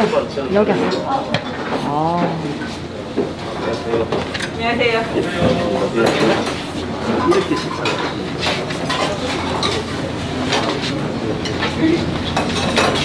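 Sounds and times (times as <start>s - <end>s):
dishes and utensils clattering: 5.2s - 13.0s.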